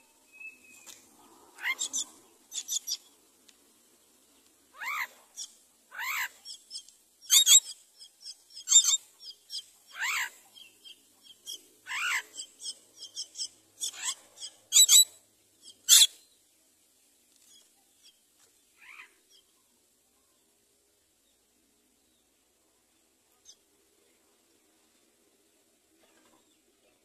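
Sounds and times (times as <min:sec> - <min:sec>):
mynas calling: 0:01.2 - 0:03.1, 0:04.7 - 0:10.4, 0:11.9 - 0:15.0.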